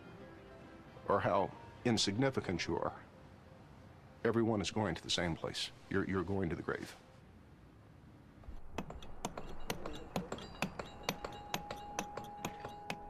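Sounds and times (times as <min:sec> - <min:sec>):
hand tools tapping on stone: 0:08.7 - 0:13.0.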